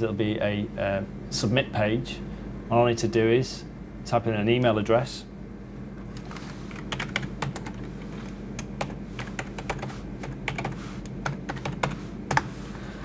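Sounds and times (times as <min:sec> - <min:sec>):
steady low hum: 0:00.0 - 0:13.0
keyboard typing: 0:06.0 - 0:12.5.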